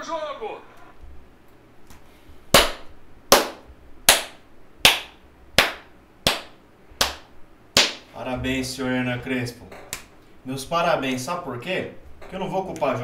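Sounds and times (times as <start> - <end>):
person clapping slowly: 2.6 - 8.0.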